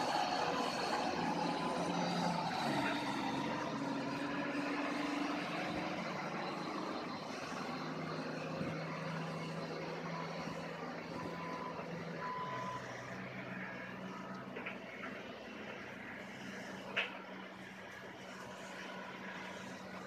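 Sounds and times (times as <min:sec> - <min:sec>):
dump truck diesel engine: 0:00.0 - 0:20.0.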